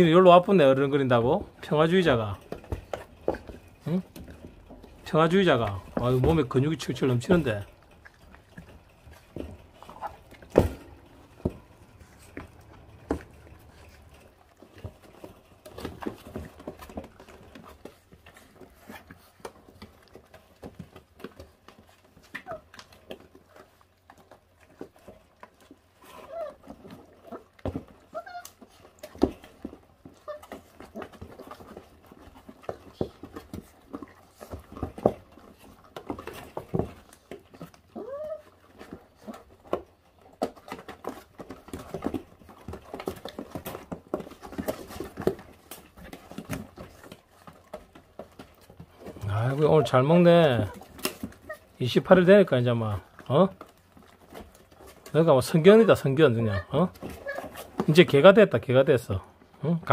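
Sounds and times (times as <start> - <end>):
puppies chewing meat: 0.0 - 59.9
squeaky puppy calls: 28.1 - 28.5.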